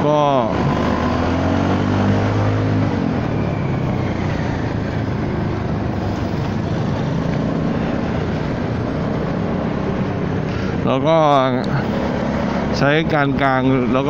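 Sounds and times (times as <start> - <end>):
scooter engine: 0.0 - 14.0
wind and road noise: 0.0 - 14.0.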